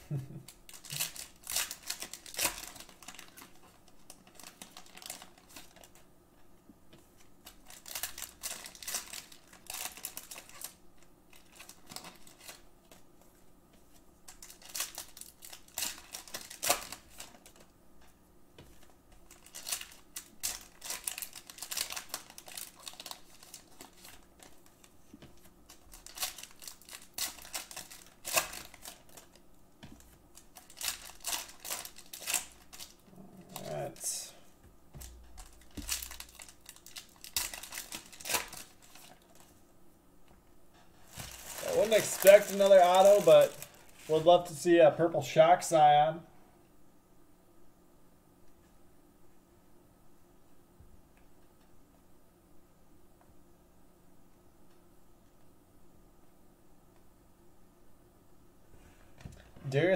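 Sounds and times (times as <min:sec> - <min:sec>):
trading cards clicking and rustling: 0:41.1 - 0:44.2.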